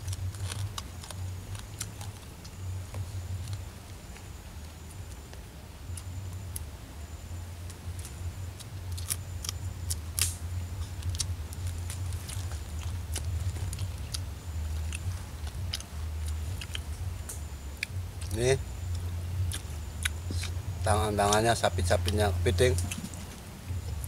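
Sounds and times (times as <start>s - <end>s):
crab shells cracking: 0.0s - 2.6s, 7.7s - 20.6s
chewing: 0.0s - 5.2s, 7.7s - 23.4s
low steady hum: 0.0s - 24.0s.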